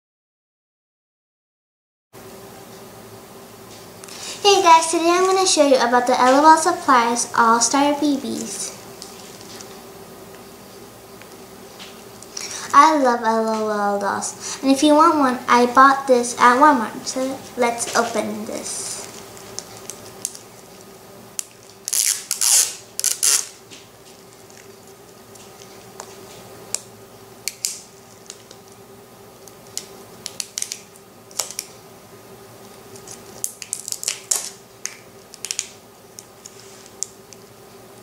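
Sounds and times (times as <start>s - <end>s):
faint steady hum: 2.2s - 38.0s
plastic wrap crinkling: 19.0s - 26.4s, 29.4s - 31.8s, 32.7s - 37.3s.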